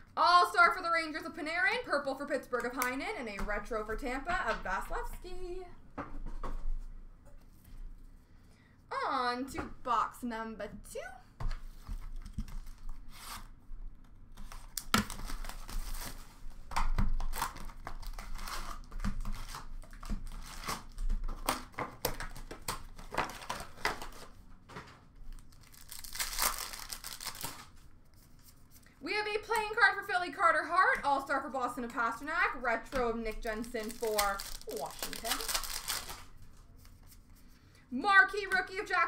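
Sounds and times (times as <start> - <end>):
plastic wrapping tearing: 14.4 - 16.5, 17.1 - 24.4, 25.3 - 27.8, 33.3 - 36.4
plastic crinkling: 25.2 - 28.5, 33.0 - 37.3.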